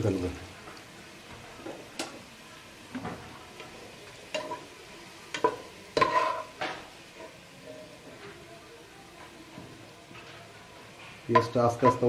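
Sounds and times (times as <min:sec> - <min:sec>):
oil sizzling: 0:00.0 - 0:12.0
metal spatula clanking on pot: 0:05.3 - 0:06.8, 0:11.3 - 0:12.0.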